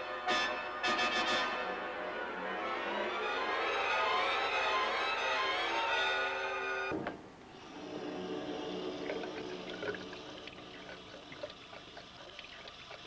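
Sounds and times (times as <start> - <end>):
music: 0.0 - 7.0, 7.6 - 11.0
water running in a sink: 8.5 - 13.0
water dripping: 8.6 - 13.0.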